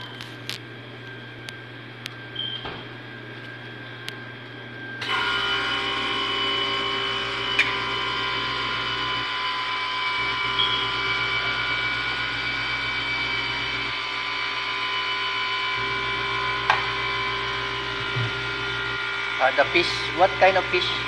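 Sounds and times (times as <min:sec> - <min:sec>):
machine motor whining: 0:00.0 - 0:21.0.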